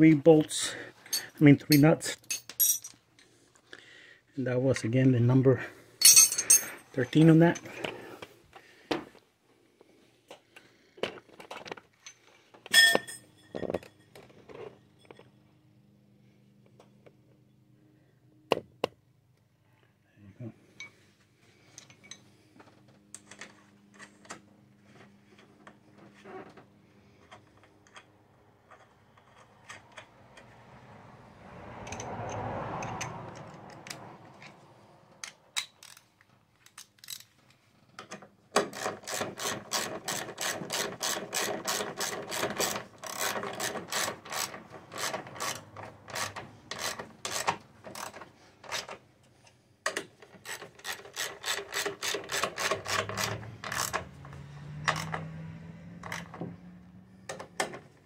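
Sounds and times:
hand ratchet clicking: 31.8 - 34.0, 35.2 - 37.3, 38.6 - 49.0, 49.8 - 55.3.

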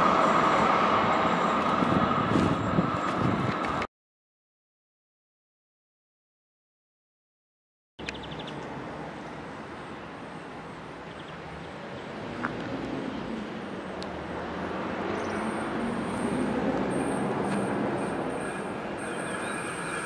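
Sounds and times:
train wheels rumbling on rails: 0.0 - 3.9, 12.3 - 20.0.

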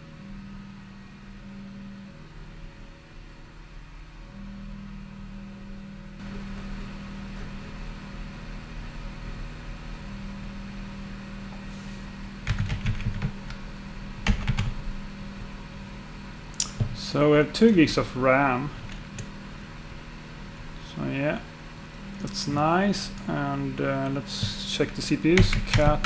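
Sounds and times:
computer fans whirring: 0.0 - 26.0
keyboard typing: 12.4 - 13.4, 14.2 - 14.7, 25.4 - 26.0.

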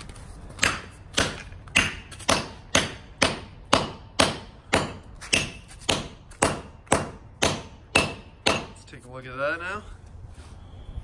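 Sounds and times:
axe blade chopping on rock: 0.6 - 8.8.

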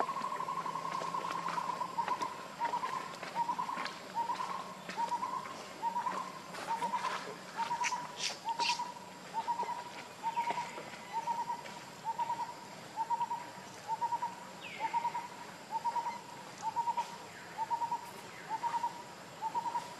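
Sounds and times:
bird calling: 0.0 - 19.9.

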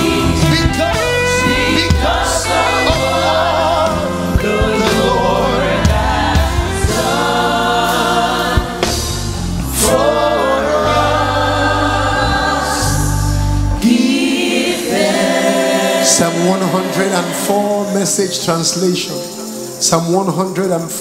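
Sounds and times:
lead singer singing: 0.0 - 9.0
deep held bass notes: 0.0 - 14.2
backing singers singing: 0.0 - 18.4
band playing gospel music: 0.0 - 21.0.

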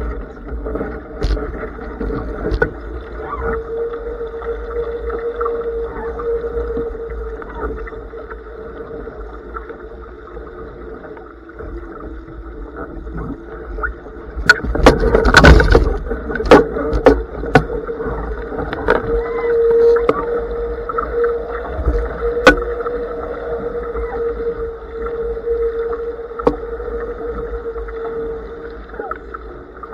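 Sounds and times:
steady hum: 0.0 - 29.9
wind and water rushing: 0.0 - 29.9
knocks and thumps on boat: 14.4 - 17.8.

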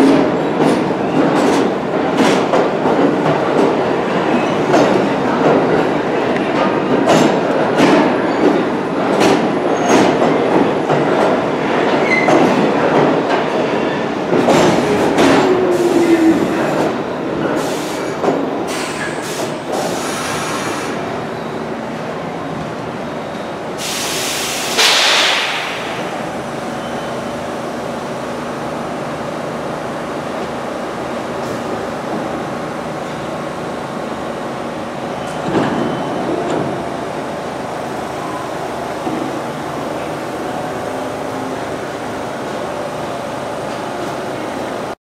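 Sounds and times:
air hiss burst: 23.8 - 26.2.

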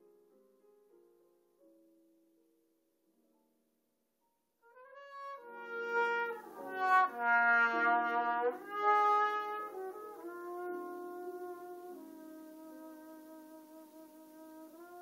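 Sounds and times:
trumpet solo: 4.6 - 15.0.

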